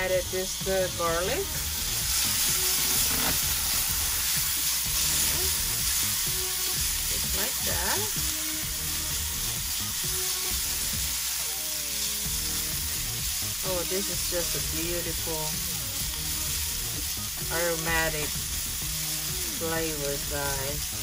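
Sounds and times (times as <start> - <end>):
vegetables sizzling in hot oil: 0.0 - 21.0
tongs scraping a pan: 1.8 - 8.2.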